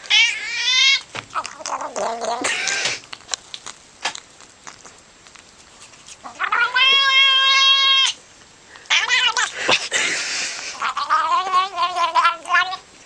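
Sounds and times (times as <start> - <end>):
cat meowing: 0.1 - 3.0, 6.2 - 8.2, 8.9 - 9.6, 10.7 - 12.8.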